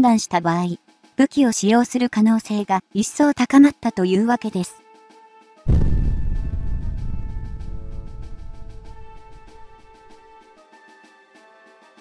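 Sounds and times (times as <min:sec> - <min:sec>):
soft background music: 0:00.0 - 0:12.0
deep boom transition effect: 0:05.7 - 0:10.2.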